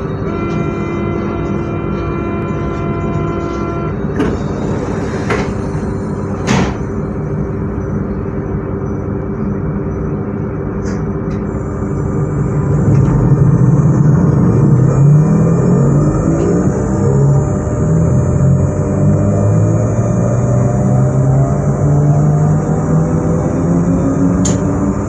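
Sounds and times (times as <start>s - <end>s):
electric train humming: 0.0s - 25.0s
rising traction motor tones: 11.4s - 25.0s.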